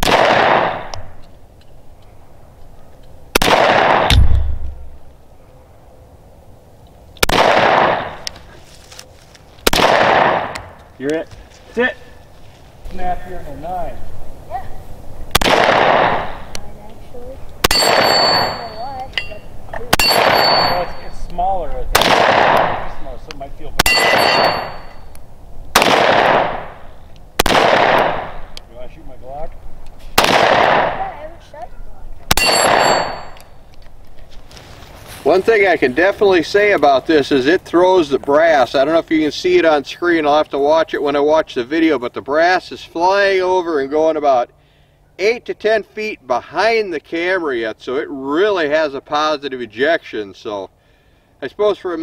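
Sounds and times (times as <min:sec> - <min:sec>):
pistol shots echoing: 0:00.0 - 0:00.9, 0:03.3 - 0:04.7, 0:07.2 - 0:08.2, 0:09.6 - 0:10.6, 0:15.3 - 0:16.4, 0:17.6 - 0:18.7, 0:19.9 - 0:21.0, 0:21.9 - 0:22.9, 0:23.8 - 0:25.0, 0:25.7 - 0:26.8, 0:27.4 - 0:28.5, 0:30.2 - 0:31.1, 0:32.3 - 0:33.4
low thump: 0:04.1 - 0:05.0.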